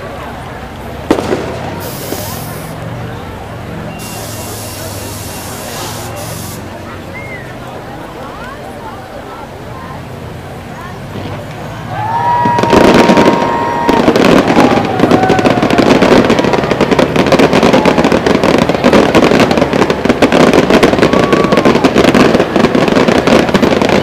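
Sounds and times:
fireworks bangs and crackles: 0:00.0 - 0:24.0
firework whistling: 0:01.0 - 0:02.8, 0:03.8 - 0:07.7, 0:11.9 - 0:24.0.

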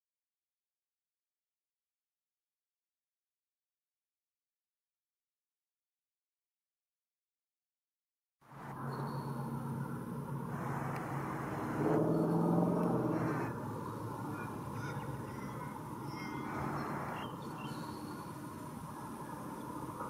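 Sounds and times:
low hum: 0:08.5 - 0:20.0
faint high bird chirps: 0:08.8 - 0:10.0, 0:10.9 - 0:19.8.

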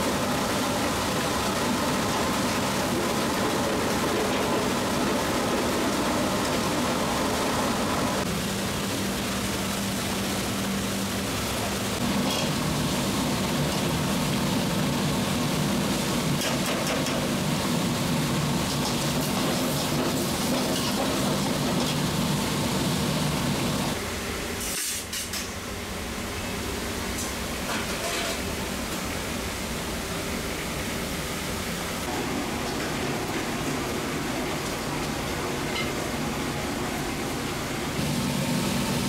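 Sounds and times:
stew boiling hard: 0:00.0 - 0:24.0, 0:32.0 - 0:39.0
kitchen hum: 0:00.0 - 0:39.0.

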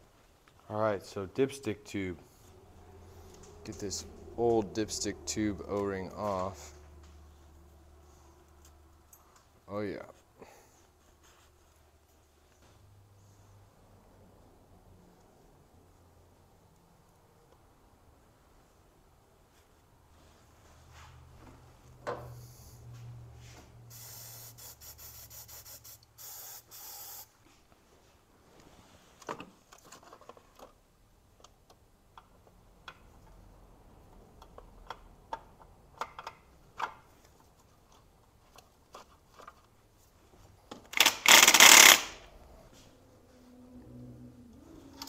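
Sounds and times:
spray can hissing: 0:23.9 - 0:27.3.

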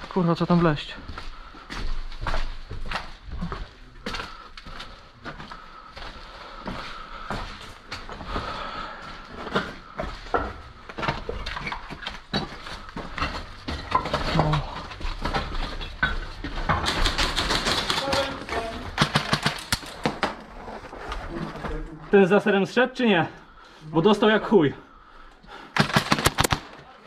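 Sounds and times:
airsoft guns firing: 0:16.8 - 0:20.3, 0:25.8 - 0:26.8.

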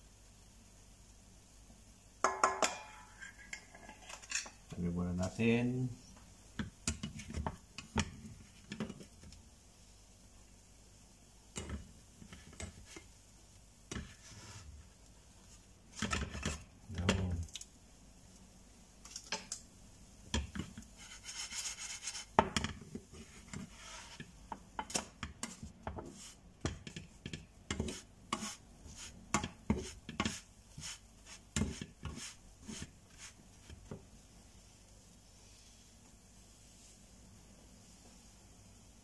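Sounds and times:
spatula scraping frying pan: 0:02.3 - 0:04.6, 0:11.6 - 0:13.1, 0:13.9 - 0:14.9, 0:15.9 - 0:16.7, 0:20.4 - 0:34.0.

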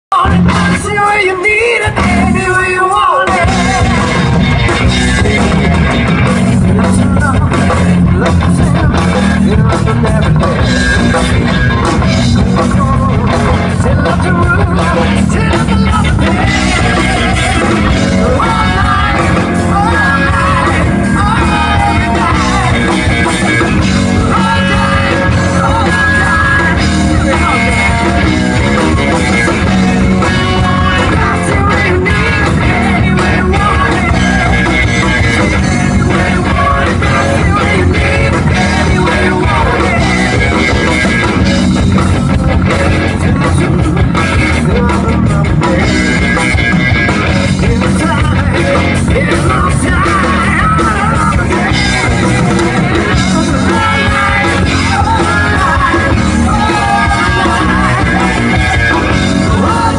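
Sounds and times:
live rock band playing: 0:00.1 - 0:59.9
person singing: 0:00.1 - 0:59.9.

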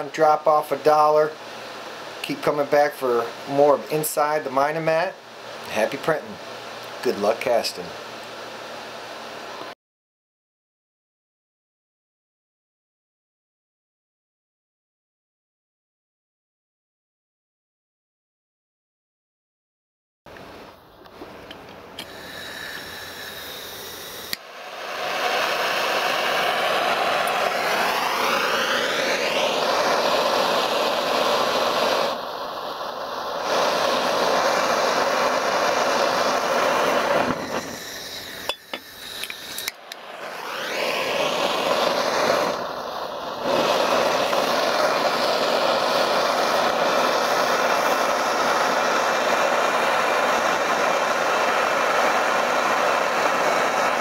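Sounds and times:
gas torch hissing: 0:00.0 - 0:09.8, 0:21.0 - 0:54.0.

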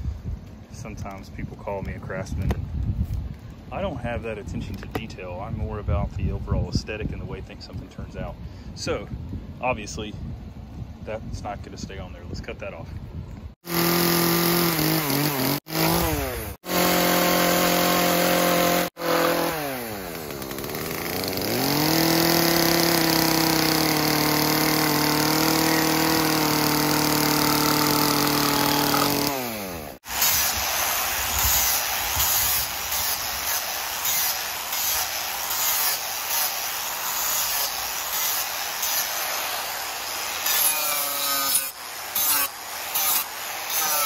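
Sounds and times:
angle grinder sanding wood: 0:13.6 - 0:44.0
chainsaw cutting wood: 0:13.6 - 0:44.0.

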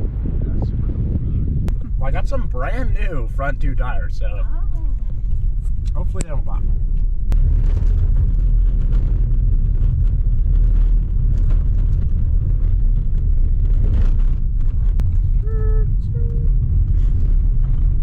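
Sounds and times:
tyres rumbling on gravel: 0:00.0 - 0:18.0
stones knocking and rattles: 0:06.9 - 0:15.3.

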